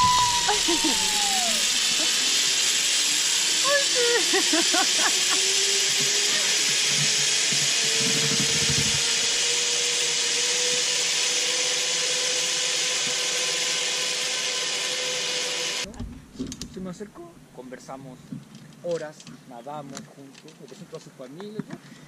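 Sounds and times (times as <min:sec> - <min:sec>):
zipline pulleys hissing on cable: 0:00.0 - 0:15.9.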